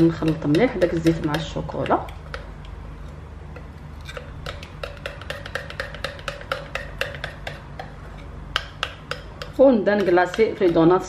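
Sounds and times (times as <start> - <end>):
steady low hum: 0.0 - 11.0
spoon clinking ceramic bowl: 4.1 - 8.0.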